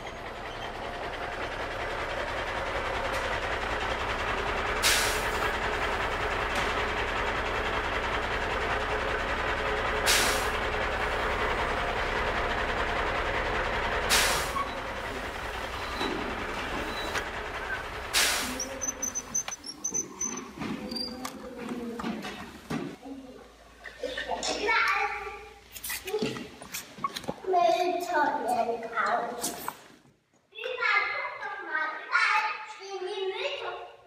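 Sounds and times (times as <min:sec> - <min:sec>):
toy trucks rolling on wooden floor: 0:15.7 - 0:23.0
short hiss bursts: 0:18.2 - 0:18.7.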